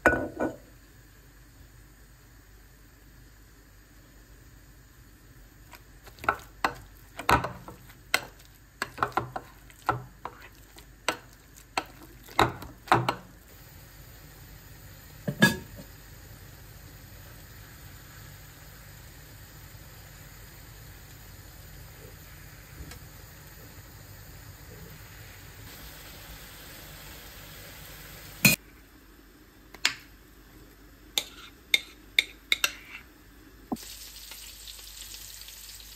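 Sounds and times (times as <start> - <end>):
meat sizzling in a pan: 5.1 - 28.6, 33.7 - 35.9.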